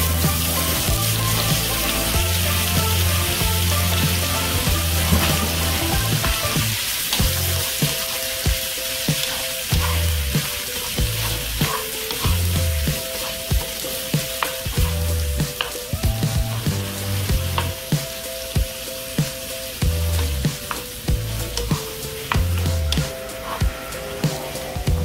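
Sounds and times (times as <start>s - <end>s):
seafood sizzling in oil: 0.0s - 24.8s
wooden spatula scraping pan: 3.7s - 8.3s, 9.1s - 17.7s.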